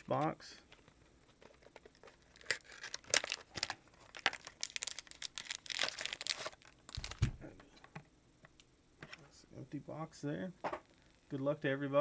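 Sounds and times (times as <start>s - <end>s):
plastic wrap tearing and crinkling: 1.6s - 7.3s.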